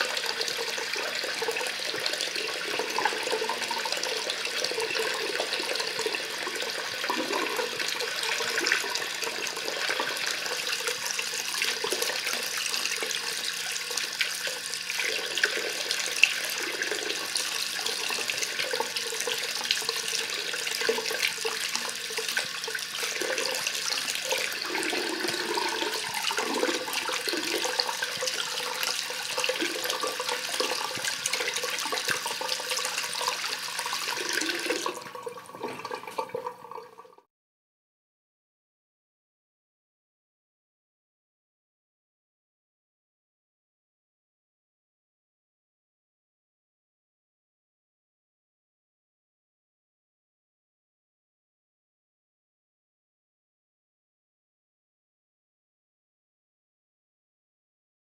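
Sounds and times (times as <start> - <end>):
tap water running into basin: 0.0 - 37.2
draining water churning: 15.0 - 37.2.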